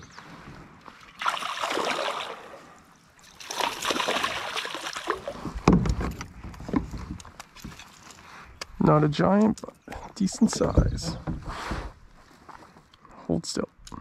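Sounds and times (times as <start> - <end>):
fish splashing at water surface: 1.1 - 5.4.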